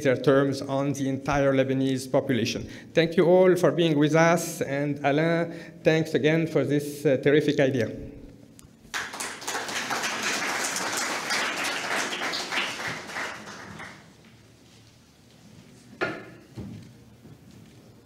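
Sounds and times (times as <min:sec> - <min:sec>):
audience applauding: 0:08.9 - 0:14.2.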